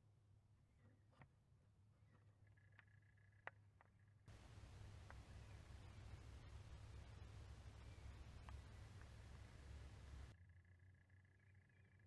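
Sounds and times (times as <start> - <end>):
faint clicks: 2.5 - 10.3
faint background hiss: 4.3 - 10.4.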